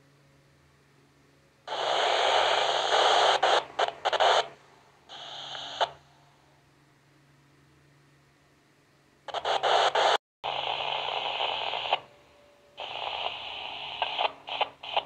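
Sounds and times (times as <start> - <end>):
radio static and hiss: 1.7 - 6.0, 9.3 - 12.2, 12.8 - 15.0.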